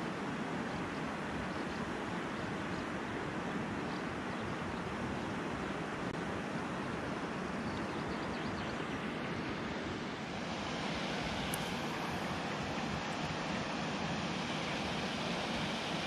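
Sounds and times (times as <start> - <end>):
river water rushing: 8.7 - 16.0.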